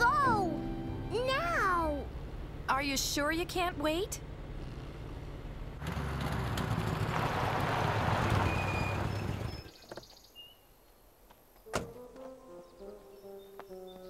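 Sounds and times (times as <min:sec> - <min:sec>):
cartoon car skidding on dirt: 0:05.8 - 0:09.8
faint bird chirps: 0:08.5 - 0:11.1.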